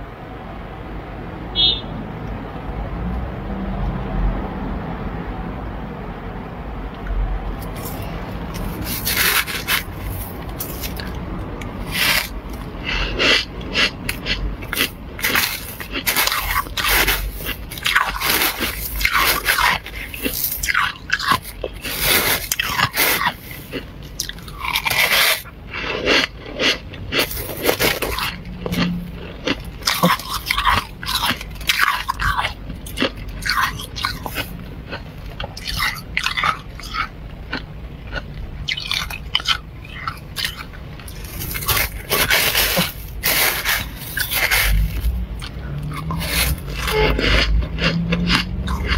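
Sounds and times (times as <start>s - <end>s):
frost crunching when chewed: 7.0s - 48.9s.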